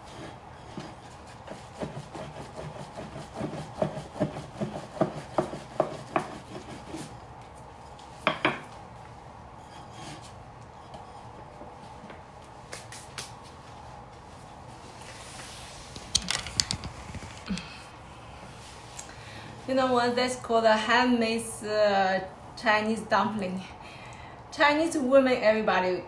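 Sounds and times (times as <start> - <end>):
rolling pin on wooden board: 0.1 - 7.1.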